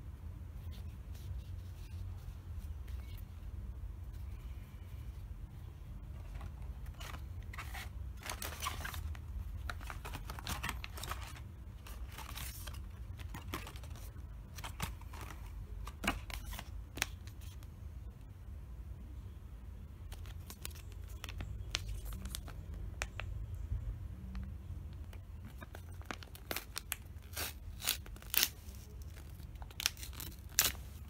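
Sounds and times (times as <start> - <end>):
steady low hum: 0.0 - 31.0
cardboard and plastic rustling: 6.1 - 17.6, 25.0 - 31.0.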